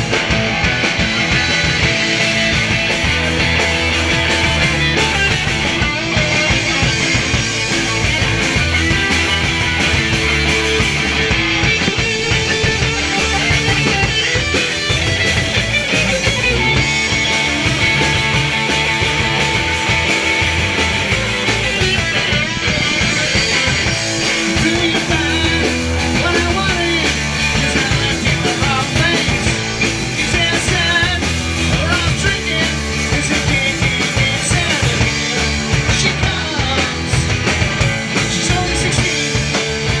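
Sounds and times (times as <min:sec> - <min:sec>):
distorted electric guitars: 0:00.0 - 0:40.0
drum kit: 0:00.0 - 0:40.0
man singing: 0:21.4 - 0:40.0.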